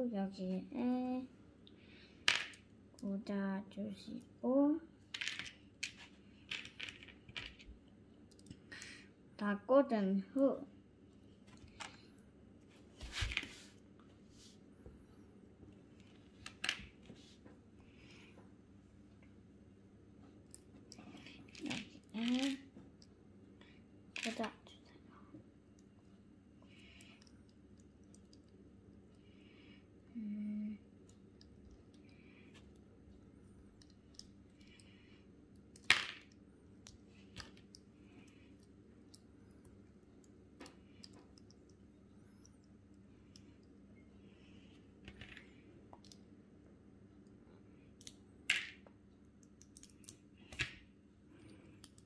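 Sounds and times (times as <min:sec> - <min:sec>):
plastic pieces clicking: 0:05.2 - 0:07.7, 0:20.5 - 0:22.6, 0:33.7 - 0:34.9, 0:35.5 - 0:37.8, 0:48.0 - 0:50.8.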